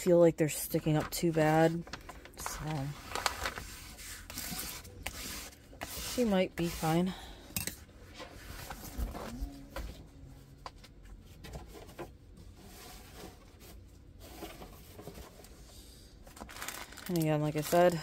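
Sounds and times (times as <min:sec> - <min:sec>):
plastic film rustling: 0:01.2 - 0:06.7, 0:16.3 - 0:18.0.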